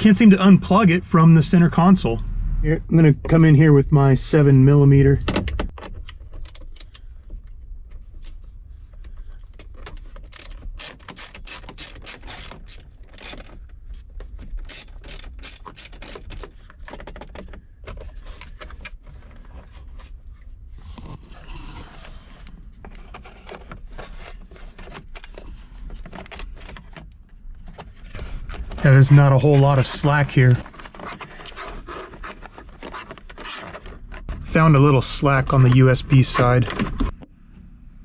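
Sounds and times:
ratchet wrench clicking: 0:10.3 - 0:13.4, 0:14.7 - 0:16.5.

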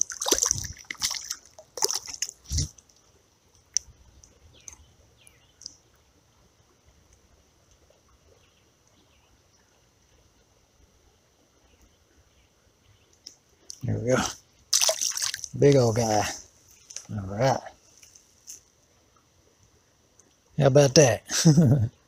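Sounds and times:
water splashing: 0:00.0 - 0:04.8, 0:13.7 - 0:17.6
steady soft hiss: 0:01.4 - 0:14.8, 0:15.4 - 0:22.0.

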